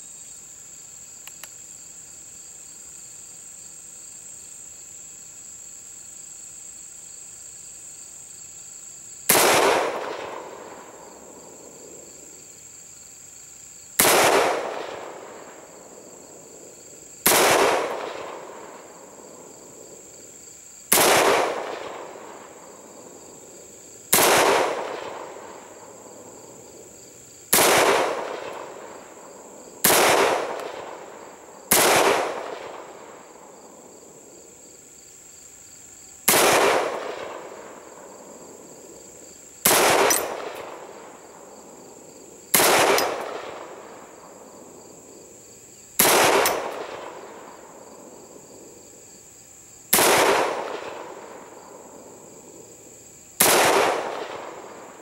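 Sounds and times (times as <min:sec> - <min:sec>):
rifle shots echoing: 0:09.3 - 0:12.0, 0:14.0 - 0:15.9, 0:17.2 - 0:19.9, 0:20.9 - 0:23.2, 0:24.1 - 0:26.4, 0:27.5 - 0:33.8, 0:36.3 - 0:39.0, 0:39.6 - 0:41.2, 0:42.5 - 0:44.8, 0:46.0 - 0:48.1, 0:49.9 - 0:52.0, 0:53.4 - 0:55.0.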